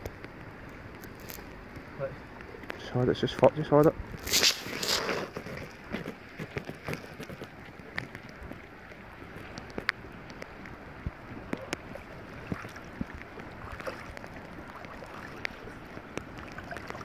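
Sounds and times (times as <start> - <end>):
small clicks and rustles: 0.0 - 17.0
water sloshing and splashing: 4.0 - 17.0.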